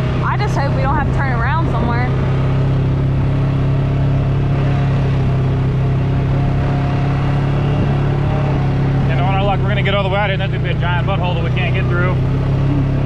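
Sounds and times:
vehicle engine droning: 0.0 - 13.0.

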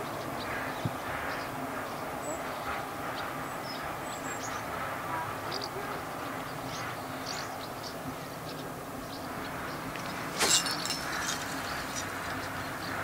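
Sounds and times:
outdoor hiss by a river: 0.0 - 13.0
rustling noise: 10.0 - 12.4.

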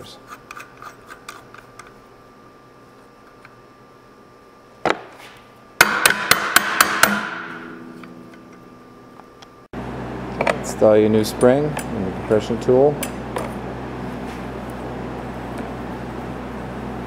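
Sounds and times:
sharp knocks on metal: 5.8 - 7.8.

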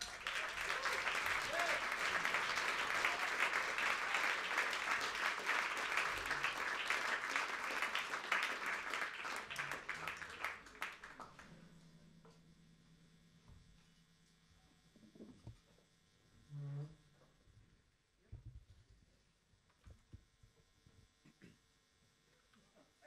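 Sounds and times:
audience applauding: 0.0 - 11.6
faint steady hum: 0.0 - 23.0.

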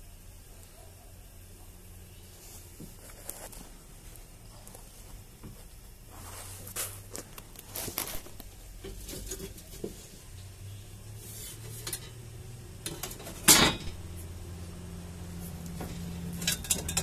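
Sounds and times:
light metallic taps and scrapes: 6.7 - 10.2, 11.2 - 14.2, 15.4 - 17.0
loud metal clank: 12.9 - 14.1.

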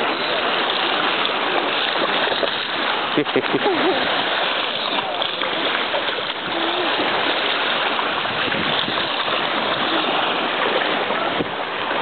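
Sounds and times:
seawater sloshing and lapping: 0.0 - 12.0.

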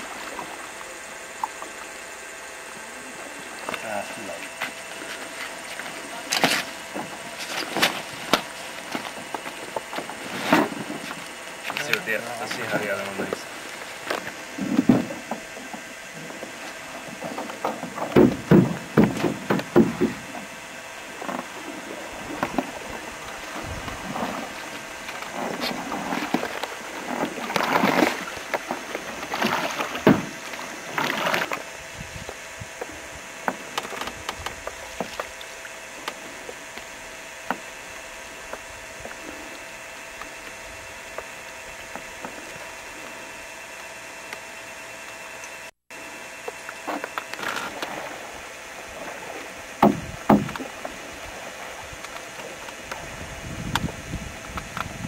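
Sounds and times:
paddle strokes splashing: 0.0 - 31.7, 46.4 - 54.8
faint hum: 0.0 - 55.0
paddles knocking on canoe: 17.2 - 20.5, 49.8 - 53.0.

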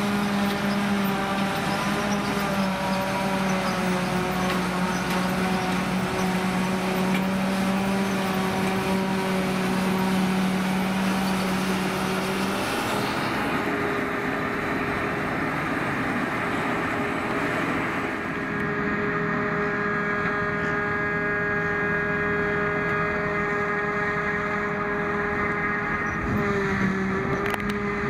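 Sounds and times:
forage harvester chopping grass: 0.0 - 18.6.

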